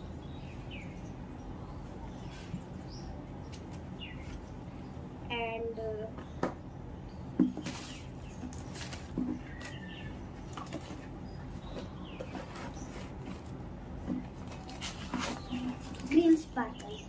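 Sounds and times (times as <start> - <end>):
low background hum: 0.0 - 17.0
papers rustling and clattering: 7.4 - 17.0.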